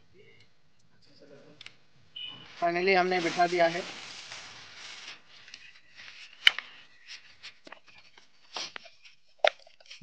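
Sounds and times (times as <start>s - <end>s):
campfire crackling: 1.6s - 8.9s.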